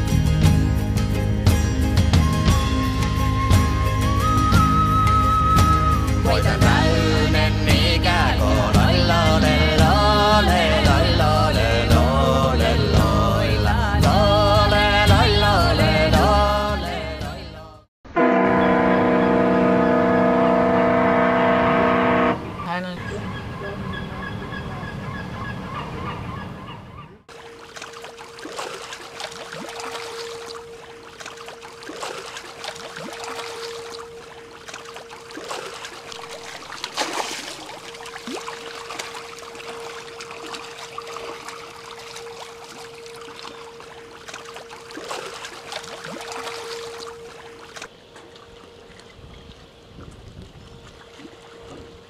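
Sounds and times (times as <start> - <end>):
wind and water: 0.0 - 52.0
gulls calling: 18.4 - 50.0.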